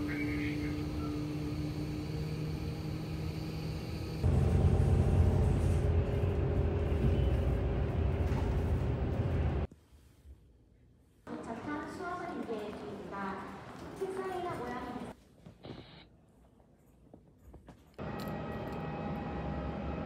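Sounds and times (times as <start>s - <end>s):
bus engine hum with whine: 0.0s - 9.7s, 18.0s - 20.0s
bus running low rumble: 0.0s - 9.7s, 18.0s - 20.0s.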